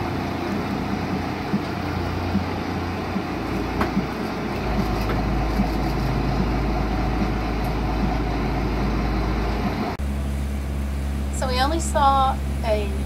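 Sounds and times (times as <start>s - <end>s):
water noise: 0.0s - 10.0s
boat engine humming: 0.0s - 13.0s
wind: 0.0s - 13.0s.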